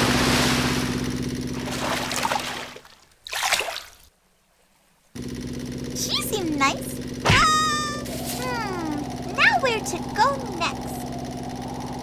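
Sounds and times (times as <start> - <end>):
low hum: 0.0 - 2.8, 5.2 - 12.0
water splashing: 0.0 - 4.1.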